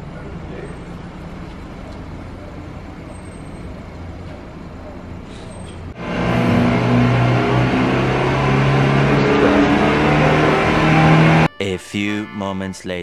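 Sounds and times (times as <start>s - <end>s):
car engine idling: 0.0s - 11.5s
car engine revving hard: 5.9s - 11.5s.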